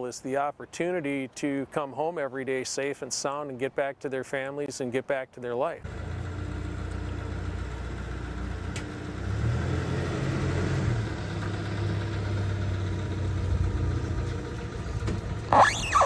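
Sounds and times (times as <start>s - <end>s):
truck engine humming: 5.8s - 16.0s.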